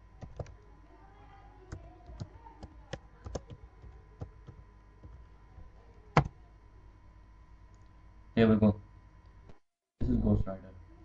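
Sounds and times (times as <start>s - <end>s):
keyboard typing clicks: 0.2s - 0.6s, 1.7s - 5.2s.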